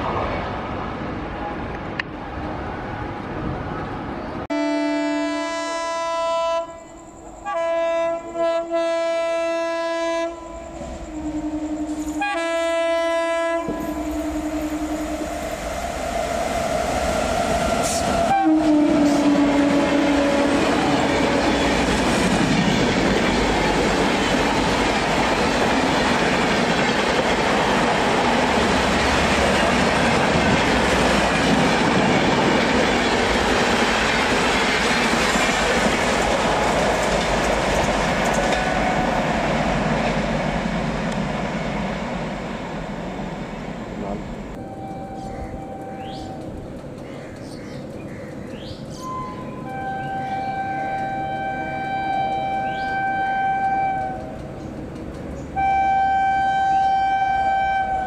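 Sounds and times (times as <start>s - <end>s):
train horn blasts: 4.5s - 15.5s, 17.1s - 22.0s, 44.6s - 46.6s, 49.0s - 54.5s, 55.6s - 58.0s
train wheels clattering over track: 17.3s - 44.4s, 45.2s - 49.1s, 53.7s - 55.6s.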